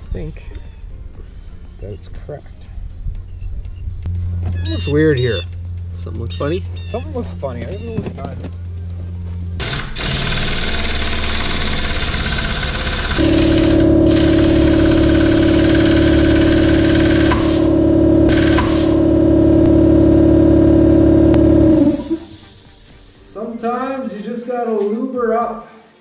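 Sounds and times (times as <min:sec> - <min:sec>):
deep motor hum: 0:02.5 - 0:22.9
loud steady machine hiss: 0:09.6 - 0:23.9.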